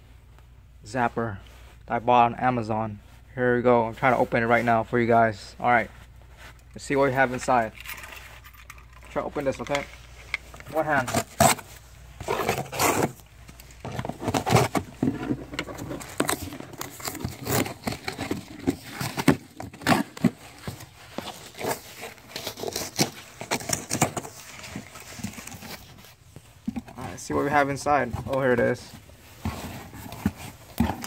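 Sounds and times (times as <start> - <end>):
cardboard box being torn open: 11.1 - 13.2, 15.8 - 20.4, 21.4 - 24.2.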